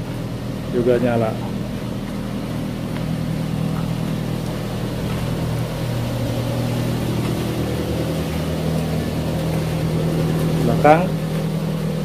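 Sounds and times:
pickup engine idling: 0:00.0 - 0:12.0.

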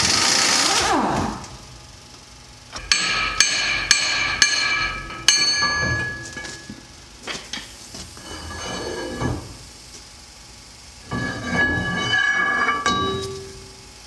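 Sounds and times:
hammer striking steel: 0:02.8 - 0:06.6, 0:11.4 - 0:13.7.

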